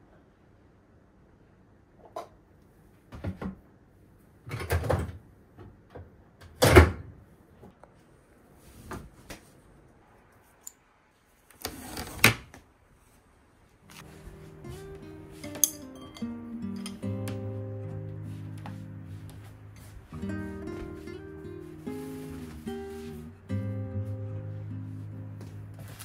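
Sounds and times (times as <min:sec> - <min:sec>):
drawer sliding shut: 0:11.6 - 0:12.5
rustling and scraping: 0:18.2 - 0:23.5, 0:24.1 - 0:26.0.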